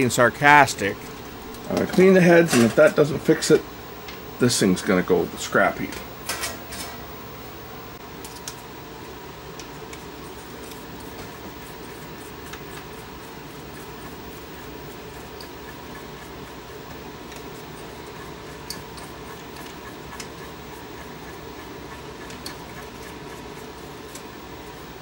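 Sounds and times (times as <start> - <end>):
background hum: 0.0 - 25.0.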